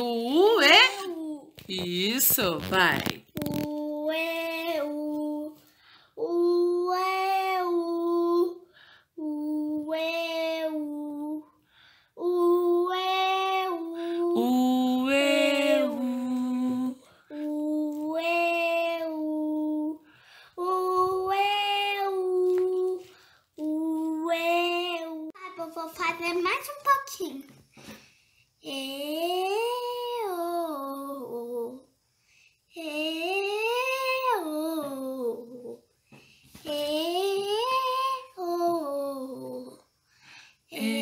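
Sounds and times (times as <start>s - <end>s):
breaths between notes: 5.7s - 6.2s, 8.7s - 9.2s, 11.6s - 12.2s, 20.0s - 20.6s, 40.0s - 40.7s
girl singing held notes: 12.2s - 25.6s, 32.8s - 39.9s, 40.7s - 41.0s.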